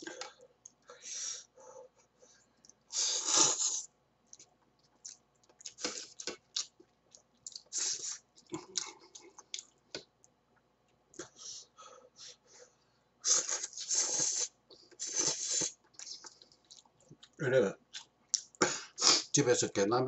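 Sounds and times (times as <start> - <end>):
noodles slurped and chewed: 13.3 - 17.4.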